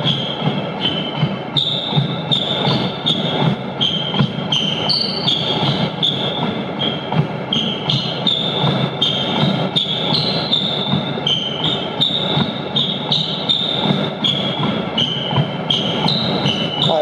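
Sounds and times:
footfalls on treadmill belt: 0.0 - 16.9
treadmill running: 0.0 - 17.0.

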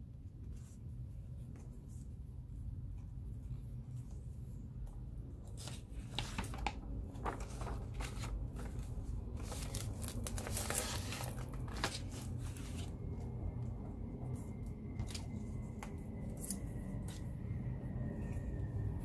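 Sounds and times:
low steady hum: 0.0 - 19.0
paper rustling and crinkling: 5.4 - 17.3.

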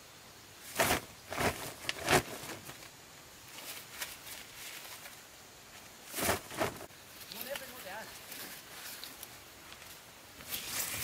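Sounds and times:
rustling of husks and plastic: 0.6 - 11.0
corn ears thudding into sack: 0.7 - 2.9, 6.1 - 7.6.

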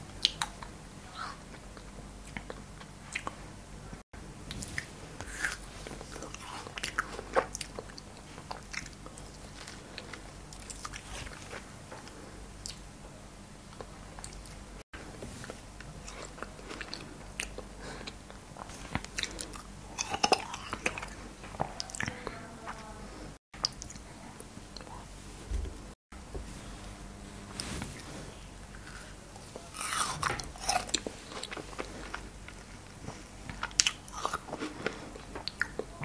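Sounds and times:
steady low hum: 0.0 - 36.0
chewing frozen cherries: 4.6 - 12.8, 15.8 - 22.2, 28.7 - 36.0.

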